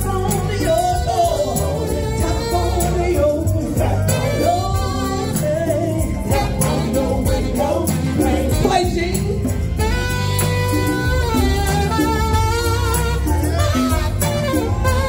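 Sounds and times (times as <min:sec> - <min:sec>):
lead singer singing: 0:00.0 - 0:10.0
drum beat: 0:00.0 - 0:15.0
live band playing: 0:00.0 - 0:15.0.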